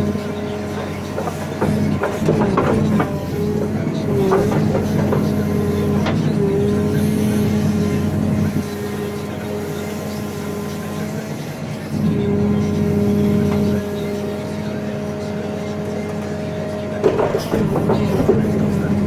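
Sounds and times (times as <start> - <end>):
diesel engine under load: 0.0 - 19.0
short knocks: 0.8 - 6.4.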